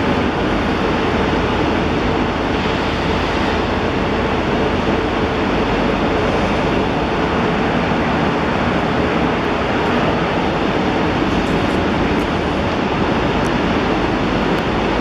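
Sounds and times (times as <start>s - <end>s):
loud rushing rumble: 0.0s - 15.0s.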